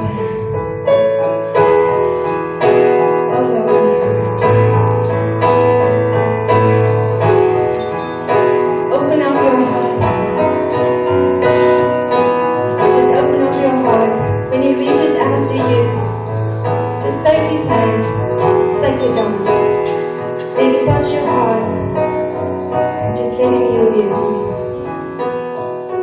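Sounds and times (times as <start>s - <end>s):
keyboard chords: 0.0s - 26.0s.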